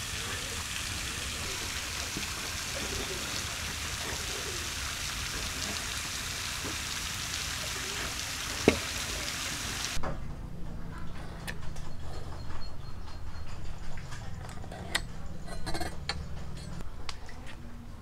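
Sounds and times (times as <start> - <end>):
steady hiss: 0.0 - 10.0.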